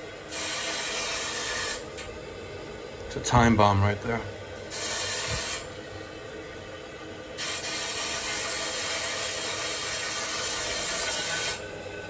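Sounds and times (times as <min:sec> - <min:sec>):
steam boiler hissing: 0:00.0 - 0:02.0, 0:03.2 - 0:05.8, 0:07.3 - 0:12.0.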